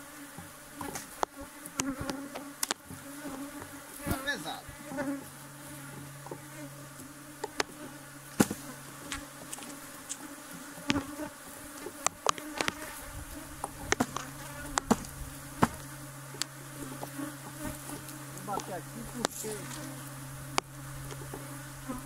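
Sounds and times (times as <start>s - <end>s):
honeybees buzzing: 0.0s - 22.0s
knocks of hive parts handled: 0.4s - 4.2s, 7.4s - 7.7s, 8.3s - 9.8s, 11.8s - 12.9s, 13.6s - 19.9s.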